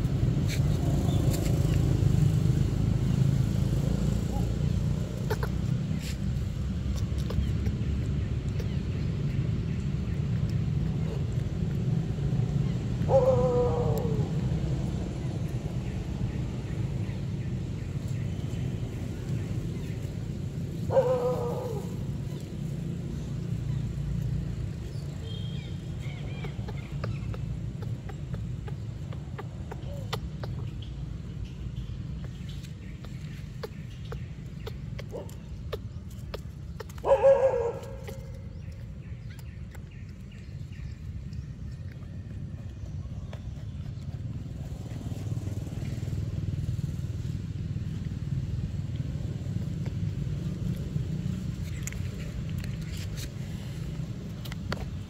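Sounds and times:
steady low rumble: 21.6 - 55.0
faint high bird chirps: 25.0 - 27.4.

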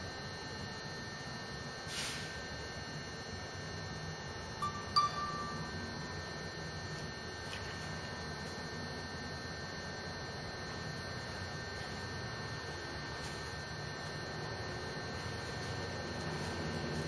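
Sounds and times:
low electrical hum: 0.0 - 17.0
high ringing tone: 4.4 - 6.8.

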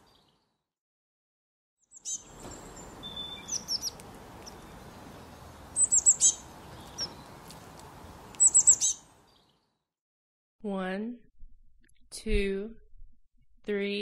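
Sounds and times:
songbird chirping: 1.8 - 9.9.

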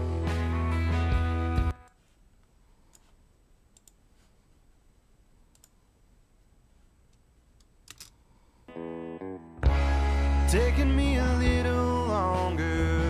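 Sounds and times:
faint sharp clicks: 5.5 - 5.8.

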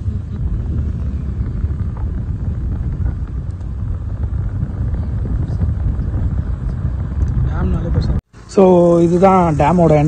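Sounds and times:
wind buffeting microphone: 0.0 - 8.2
vehicle road rumble: 0.0 - 10.0.

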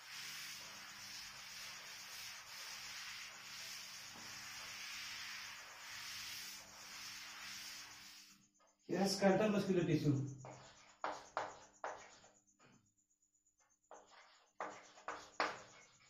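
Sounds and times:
cloth wiping a blackboard: 0.0 - 8.4, 10.4 - 12.3, 13.9 - 16.0.

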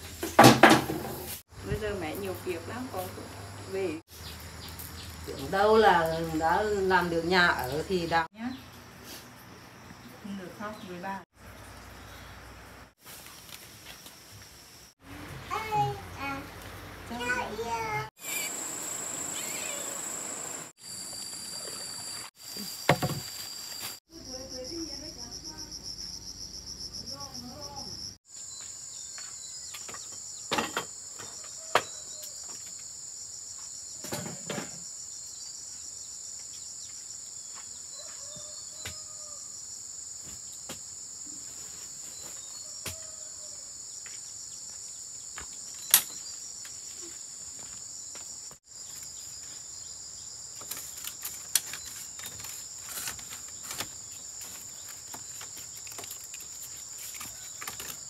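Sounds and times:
insect chorus trilling: 18.2 - 41.4.

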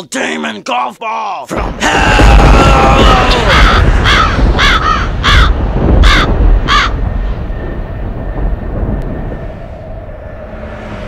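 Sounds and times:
low rumble: 1.5 - 11.0
crows cawing: 3.1 - 7.1.

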